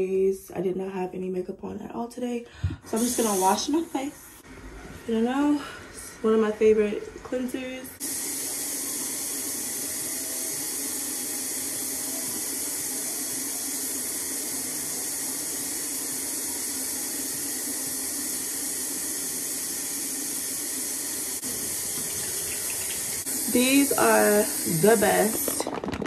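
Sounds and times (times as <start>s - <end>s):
tap water running into sink: 21.4s - 26.0s.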